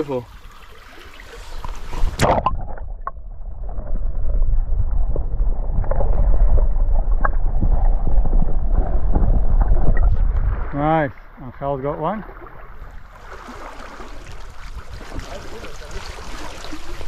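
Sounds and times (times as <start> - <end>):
muffled underwater rushing current: 0.3 - 17.0
camera splashing into water: 2.0 - 3.0.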